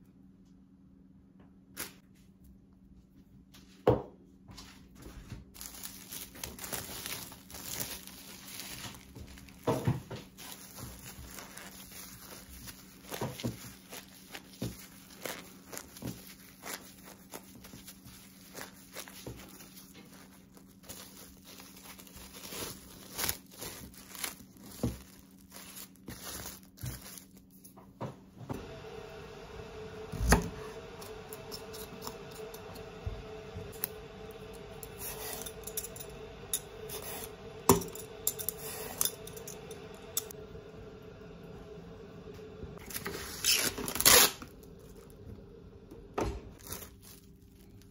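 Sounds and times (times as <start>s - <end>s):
plastic wrap crinkling: 5.5s - 27.8s, 42.8s - 45.3s, 46.5s - 47.9s
vegetable peeler scraping: 34.8s - 39.6s.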